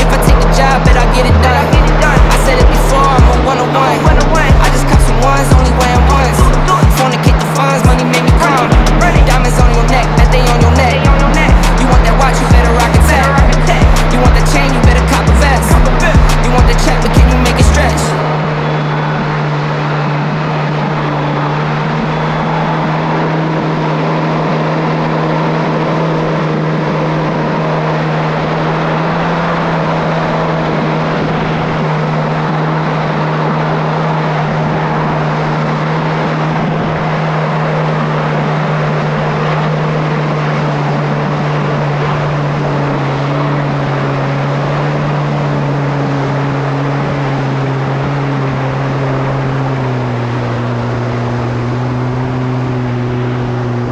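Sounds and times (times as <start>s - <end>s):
jet ski engine running: 0.0s - 53.9s
water rushing along hull: 0.0s - 53.9s.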